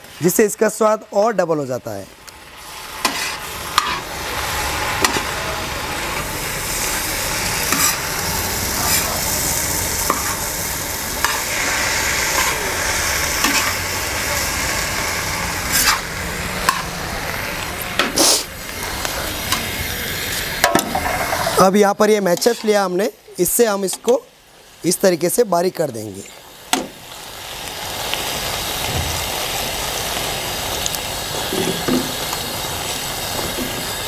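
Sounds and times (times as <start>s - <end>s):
food sizzling in a pan: 0.0s - 34.0s
spoon knocking and scraping pan: 3.0s - 4.0s, 7.7s - 8.0s, 20.6s - 21.6s.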